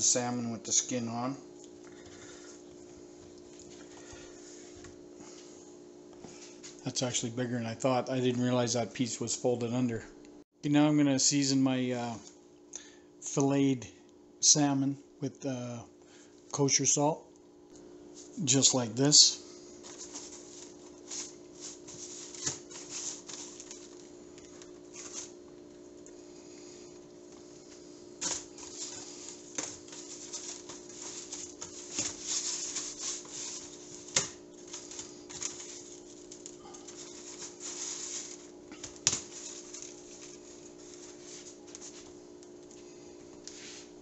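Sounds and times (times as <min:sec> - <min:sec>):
steady low hum: 0:00.0 - 0:44.0
salt crunching and rustling: 0:19.8 - 0:25.4, 0:28.1 - 0:42.9.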